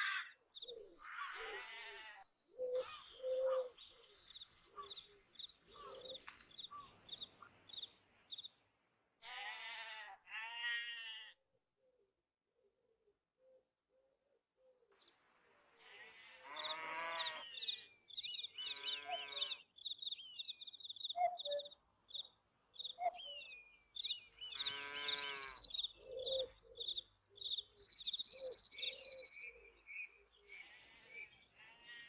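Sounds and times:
songbirds chirping: 0:00.0 - 0:08.9, 0:15.0 - 0:32.0
farm animals calling: 0:01.1 - 0:07.8, 0:09.2 - 0:11.3, 0:15.8 - 0:23.5, 0:24.3 - 0:32.0.

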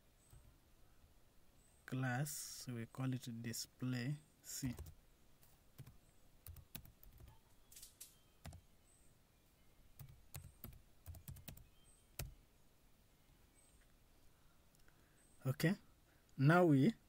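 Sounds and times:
typing on keyboard: 0:04.7 - 0:04.9, 0:05.8 - 0:07.4, 0:10.0 - 0:12.3.

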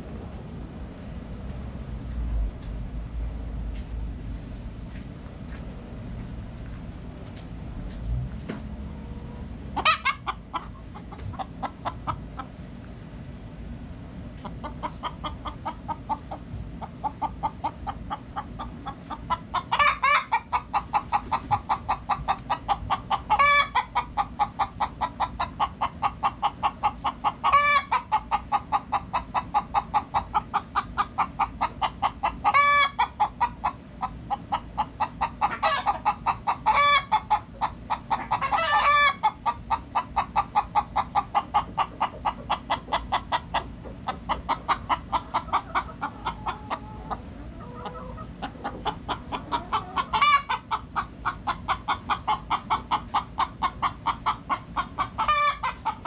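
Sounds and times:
chickens clucking: 0:07.2 - 0:13.0, 0:14.2 - 0:56.0
loud chicken calls: 0:09.8 - 0:12.5, 0:14.6 - 0:56.0.

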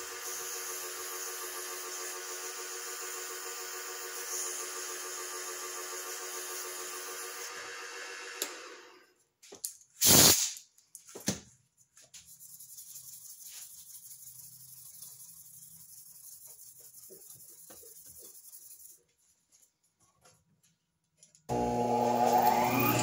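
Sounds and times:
wood lathe running: 0:21.5 - 0:23.0.

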